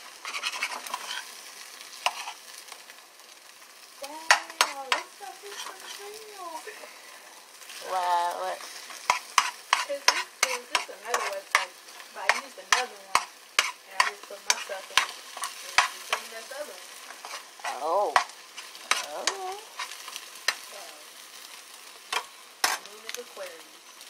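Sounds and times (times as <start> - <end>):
spatula scraping pan: 0.0 - 2.8, 4.2 - 23.4
eggs sizzling in frying pan: 0.0 - 24.0
spatula clicking against pan: 9.0 - 16.3.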